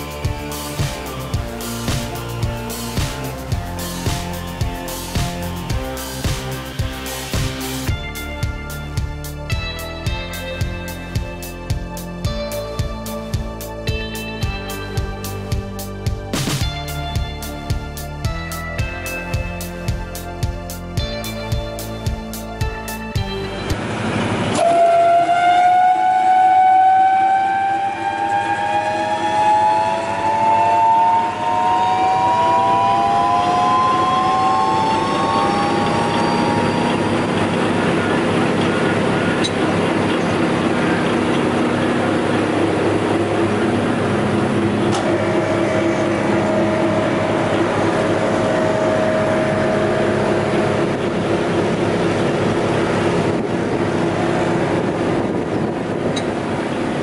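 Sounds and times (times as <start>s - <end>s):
wood chipper motor whine: 23.4s - 57.0s.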